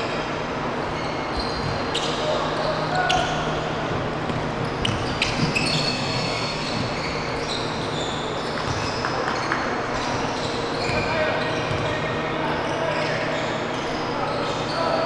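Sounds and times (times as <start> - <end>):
sneakers squeaking on hardwood: 0.9 - 3.6, 4.2 - 15.0
basketball bouncing: 11.7 - 11.9.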